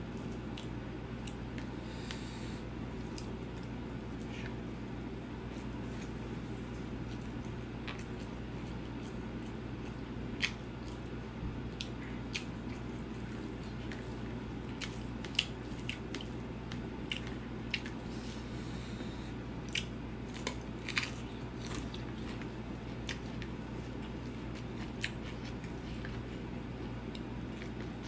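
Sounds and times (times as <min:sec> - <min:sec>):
steady low hum: 0:00.0 - 0:28.0
wet chewing: 0:03.0 - 0:04.6, 0:05.5 - 0:18.0, 0:19.6 - 0:28.0.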